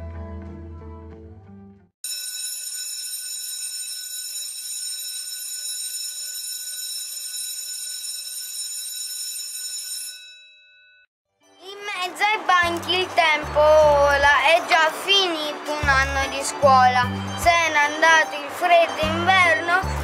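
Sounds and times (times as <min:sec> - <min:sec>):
electric school bell ringing: 0:02.0 - 0:11.1, 0:12.8 - 0:20.0.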